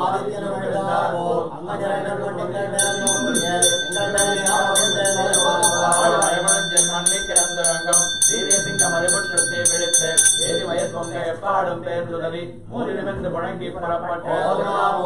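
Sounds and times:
people chanting: 0.0 - 15.0
hand bell ringing: 2.8 - 11.3.

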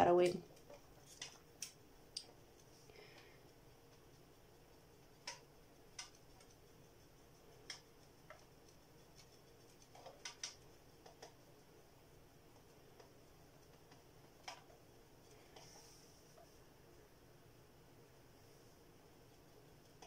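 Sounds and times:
paintbrush tapping on pot: 3.2 - 11.4.

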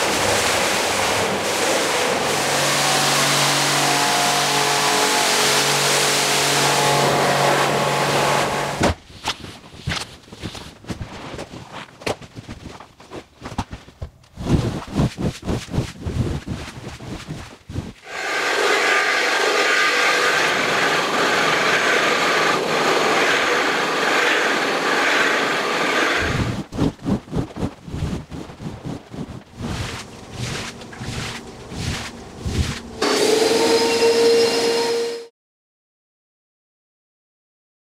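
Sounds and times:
wet scrubbing strokes: 0.0 - 3.7, 14.4 - 34.4
electric scrubbing machine hissing: 18.0 - 26.5, 29.6 - 35.2.

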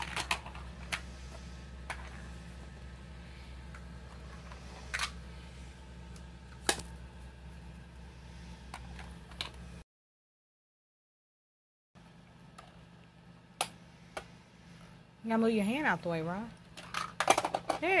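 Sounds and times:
steady low hum: 0.0 - 9.8, 12.0 - 18.0
plastic toy clicks and knocks: 16.8 - 17.9.

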